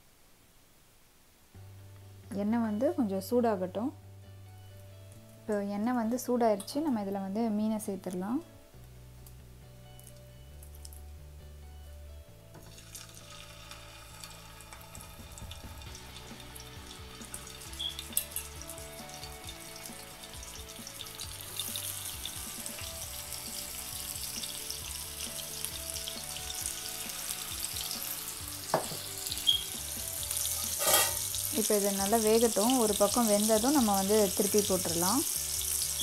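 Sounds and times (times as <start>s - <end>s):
fish sizzling in hot oil: 12.6s - 36.0s.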